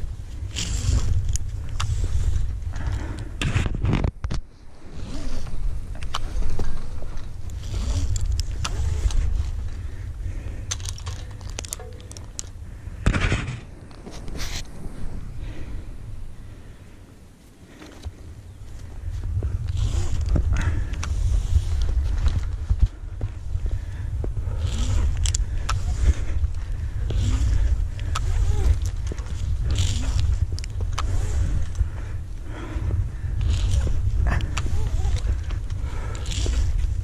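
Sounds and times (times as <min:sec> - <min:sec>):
climbing rope rustling and clicking: 0:00.0 - 0:12.6, 0:17.4 - 0:37.0
low rumble: 0:00.0 - 0:37.0
carabiners clinking and clicking: 0:10.5 - 0:12.6, 0:24.6 - 0:25.4.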